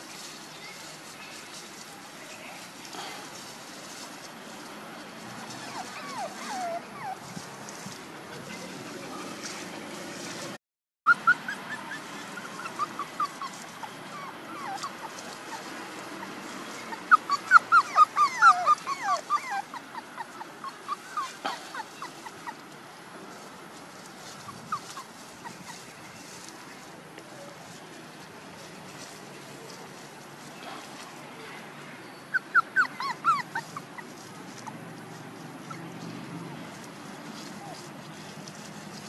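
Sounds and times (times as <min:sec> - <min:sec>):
puppies whimpering and yelping: 0:05.4 - 0:09.8, 0:11.1 - 0:22.7, 0:24.2 - 0:26.5, 0:32.1 - 0:36.0, 0:36.8 - 0:39.0.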